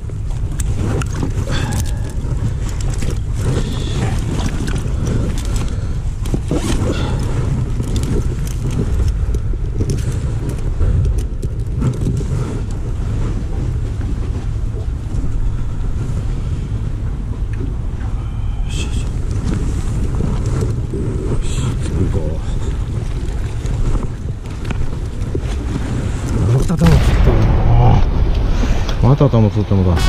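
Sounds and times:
small clicks and rustles: 0:00.0 - 0:15.4, 0:19.0 - 0:26.8
wind buffeting microphone: 0:00.0 - 0:30.0.

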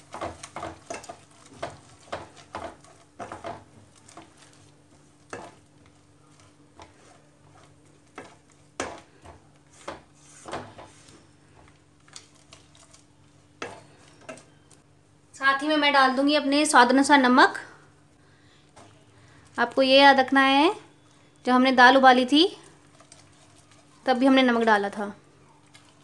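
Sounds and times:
spatula scraping a pan: 0:00.0 - 0:14.7, 0:22.6 - 0:24.3
paste sizzling: 0:00.0 - 0:14.8, 0:21.8 - 0:26.0
faint steady hum: 0:00.0 - 0:26.0.

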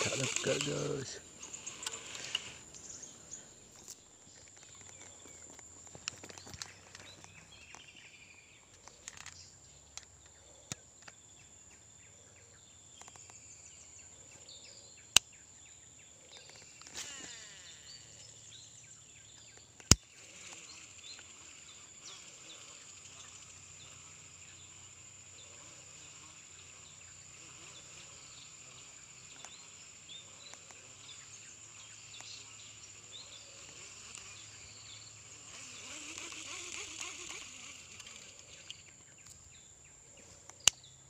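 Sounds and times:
sharp clicks: 0:00.0 - 0:02.9, 0:19.6 - 0:21.3, 0:40.4 - 0:40.9
high-pitched insect drone: 0:00.0 - 0:07.2, 0:16.2 - 0:39.4.

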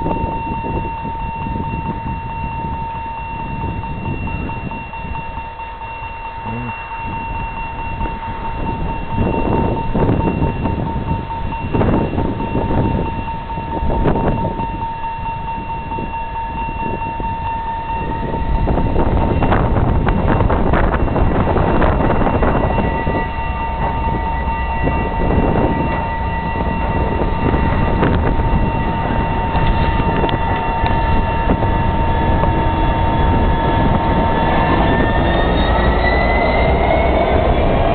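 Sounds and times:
diesel locomotive engine: 0:00.0 - 0:37.9
steady high tone: 0:00.0 - 0:37.9
low rumble of bogies: 0:15.7 - 0:37.9.

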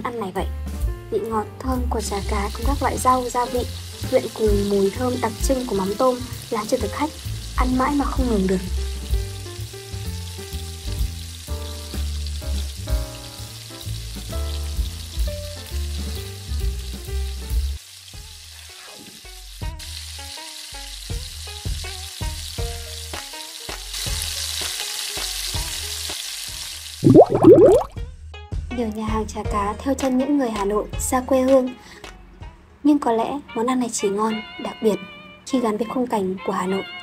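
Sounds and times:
background music with bass: 0:00.0 - 0:05.8, 0:06.8 - 0:17.8
fish sizzling in a hot pan: 0:01.9 - 0:27.0.

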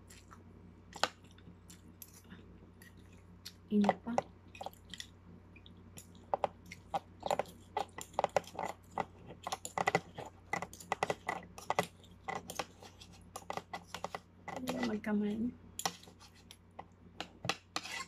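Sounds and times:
chewing: 0:00.0 - 0:14.9
cutlery scraping a ceramic plate: 0:17.7 - 0:18.0.

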